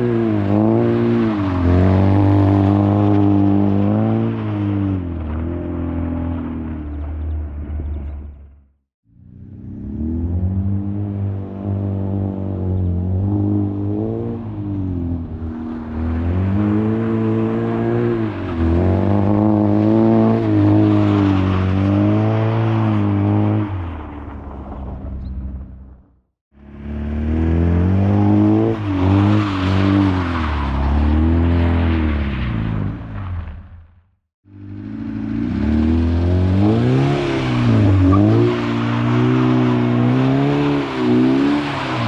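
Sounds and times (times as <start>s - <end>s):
car engine revving hard: 34.8s - 42.0s.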